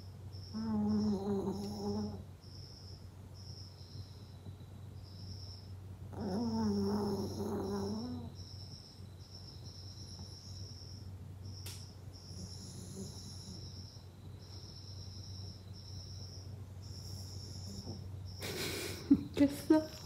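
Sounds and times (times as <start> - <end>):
puppy groaning: 0.5 - 2.2, 6.1 - 8.4.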